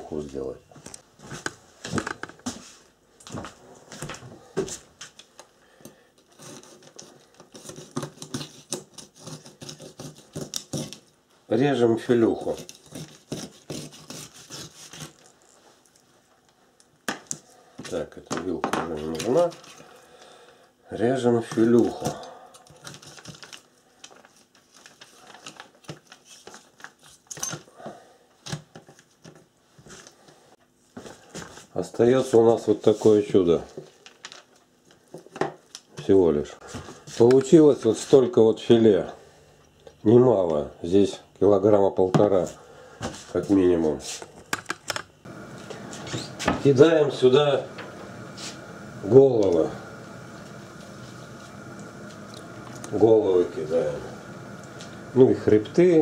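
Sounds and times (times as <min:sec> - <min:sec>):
knife and fork cutting fish: 0:06.4 - 0:11.0, 0:12.4 - 0:15.3.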